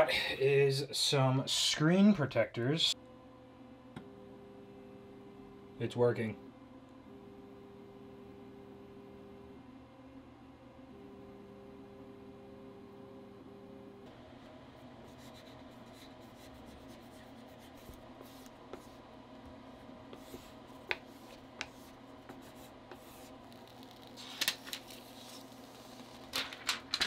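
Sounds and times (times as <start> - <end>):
steady low hum: 0.0 - 27.0
film rubbing and scraping on screen: 20.2 - 27.0.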